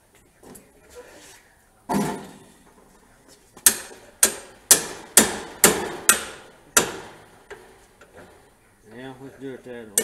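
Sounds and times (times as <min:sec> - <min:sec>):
hammer striking metal: 0:03.7 - 0:07.3.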